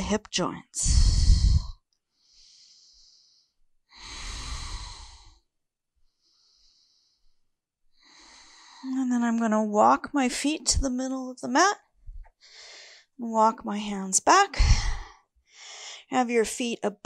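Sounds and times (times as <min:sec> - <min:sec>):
woman breathing slowly: 0:00.8 - 0:08.9, 0:12.2 - 0:13.2, 0:14.6 - 0:16.1.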